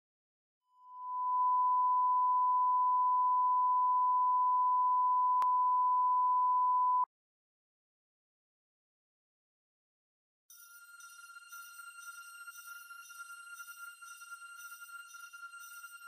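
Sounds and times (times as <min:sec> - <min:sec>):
steady pure test tone: 0:00.8 - 0:07.0.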